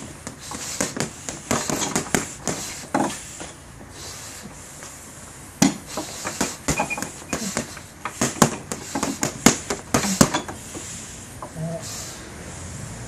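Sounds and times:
gloves punching heavy bag: 0.0 - 4.6, 5.6 - 10.9.

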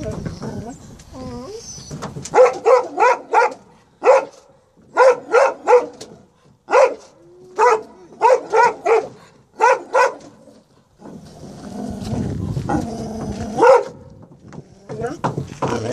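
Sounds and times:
dog barking sharply: 2.3 - 6.1, 6.7 - 10.3, 13.6 - 14.0.

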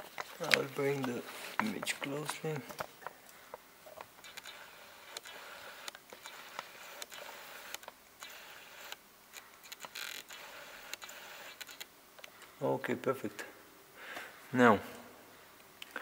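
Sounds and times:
camera autofocus clicks: 4.2 - 12.3.

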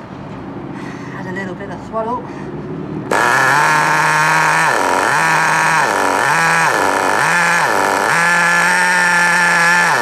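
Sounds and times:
rc nitro engine revving: 3.1 - 10.0.

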